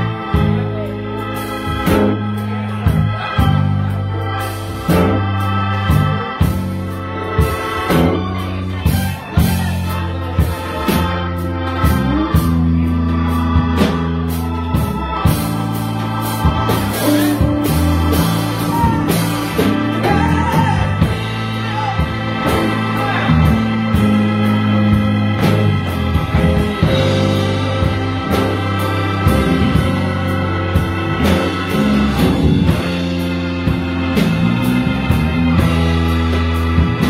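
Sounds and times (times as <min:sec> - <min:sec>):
electric bass: 0:00.0 - 0:37.0
organ chords: 0:00.0 - 0:37.0.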